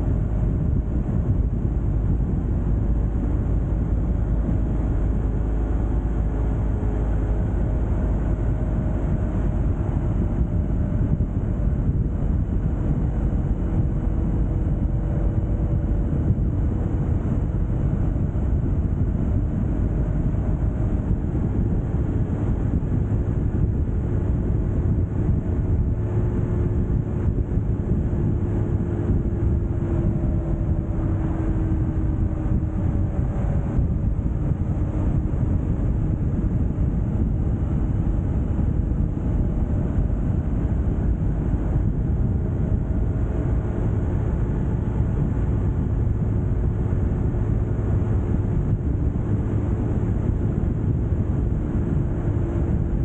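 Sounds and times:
faint engine tones: 0.0s - 53.0s
vehicle road rumble: 0.0s - 53.0s.

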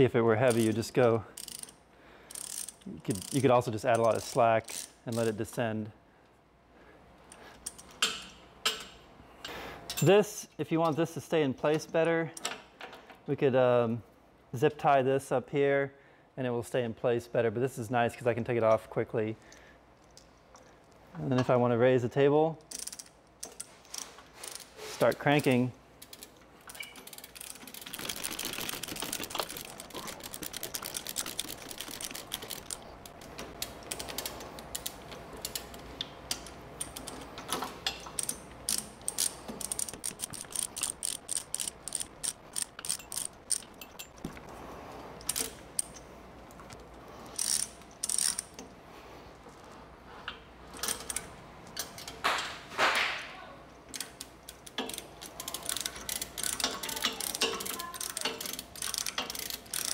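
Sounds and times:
ratchet clicking: 1.4s - 5.4s, 22.7s - 24.7s, 25.4s - 44.3s, 47.3s - 48.6s, 53.9s - 59.9s.

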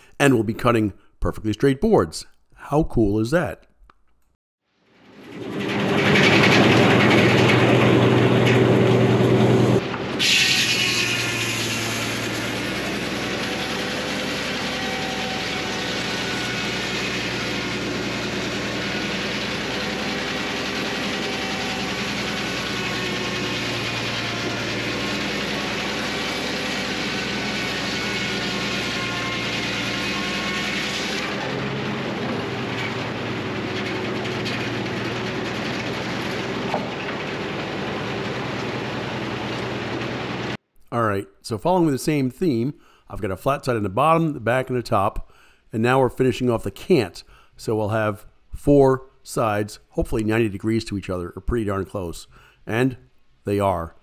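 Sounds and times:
circular sawmill sawing log: 5.0s - 40.6s.

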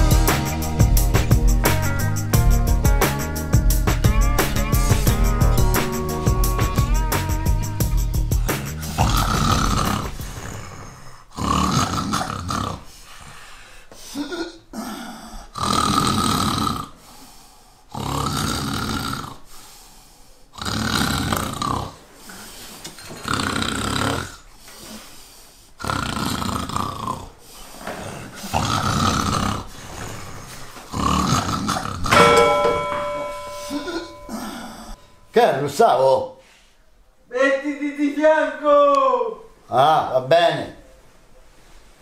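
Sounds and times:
man snoring loudly: 4.5s - 12.9s, 14.8s - 17.0s, 17.9s - 19.5s, 20.5s - 22.0s, 23.2s - 24.4s, 25.8s - 27.3s, 28.0s - 30.3s, 30.9s - 32.1s.

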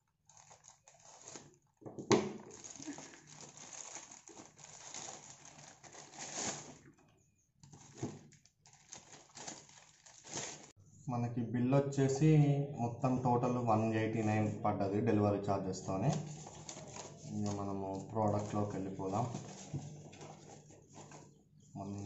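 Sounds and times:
sharp plastic crackle: 0.0s - 6.9s, 7.6s - 10.8s
plastic bag crinkling: 0.0s - 7.0s, 7.6s - 10.8s, 16.0s - 21.3s.

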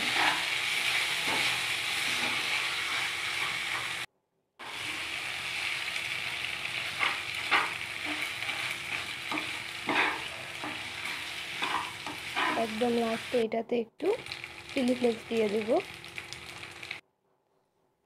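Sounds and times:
spatula scraping a pan: 0.0s - 5.2s, 6.8s - 13.3s
pasta sizzling in a pan: 0.0s - 13.4s, 14.0s - 17.0s.

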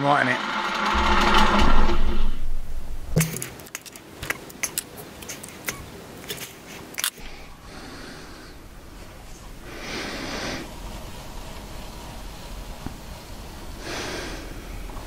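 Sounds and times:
short rush of noise: 0.0s - 3.2s.

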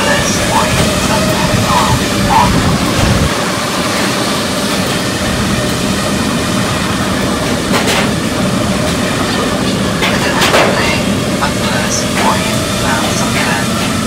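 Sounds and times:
drone motors and propellers buzzing: 0.0s - 10.5s.

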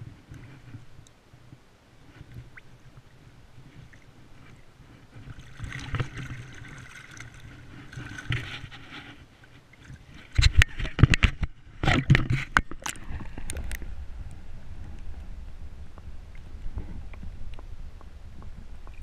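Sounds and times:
river water splashing: 1.1s - 13.8s.

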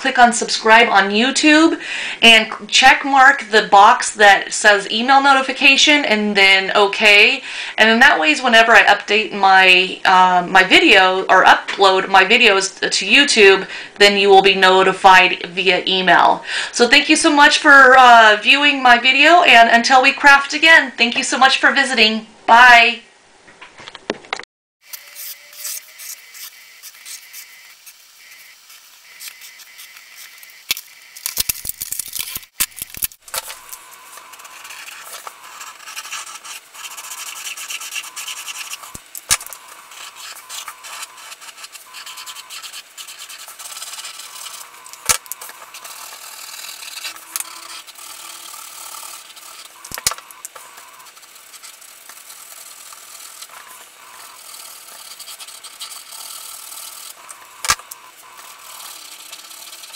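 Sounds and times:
marker scratching on paper: 34.1s - 39.0s, 39.6s - 49.8s, 50.6s - 57.2s, 58.4s - 59.9s.

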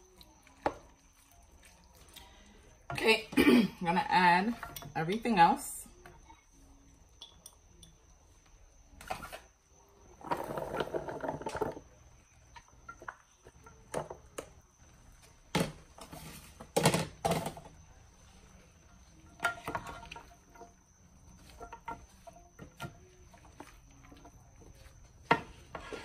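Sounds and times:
wooden spoon stirring vegetables: 10.1s - 26.0s
dishes clattering: 19.2s - 20.8s.

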